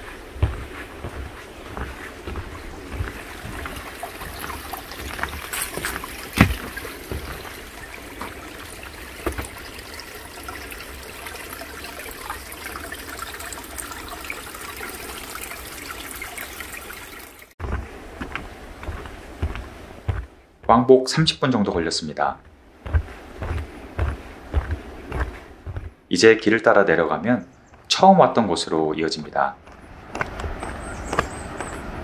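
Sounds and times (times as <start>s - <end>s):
stream trickling over rocks: 0.0s - 17.8s.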